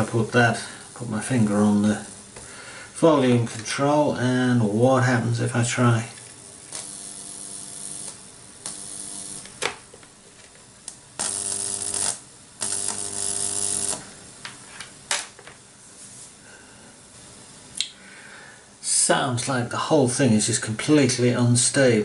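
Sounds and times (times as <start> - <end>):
speaker buzz: 6.7 - 9.8, 11.2 - 14.4.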